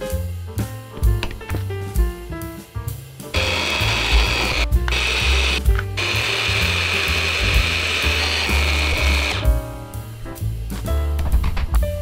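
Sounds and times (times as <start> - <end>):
drill press whining: 3.4 - 9.5.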